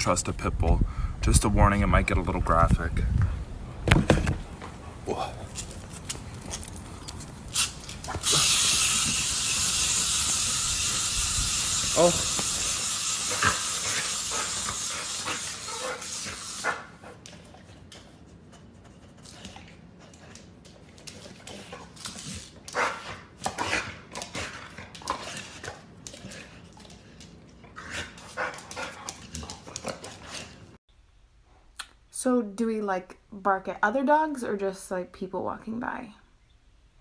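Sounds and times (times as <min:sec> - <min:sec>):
steady hiss: 0:07.4 - 0:17.0.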